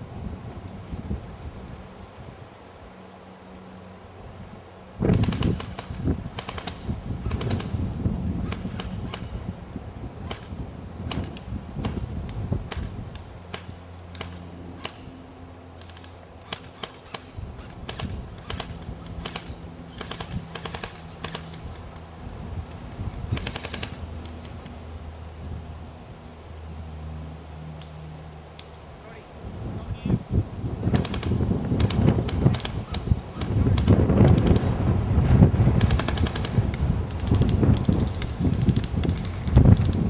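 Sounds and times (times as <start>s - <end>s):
airsoft guns firing: 5.1s - 7.8s, 8.5s - 9.4s, 10.2s - 12.1s, 13.5s - 15.1s, 15.8s - 21.7s, 23.3s - 24.0s, 30.9s - 34.7s, 35.8s - 38.4s.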